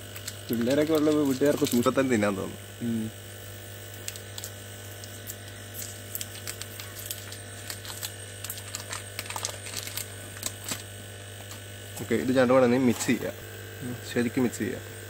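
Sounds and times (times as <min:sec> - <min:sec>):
plastic wrapper crinkling: 0:00.0 - 0:02.0, 0:03.9 - 0:12.1
steady low hum: 0:00.0 - 0:15.0.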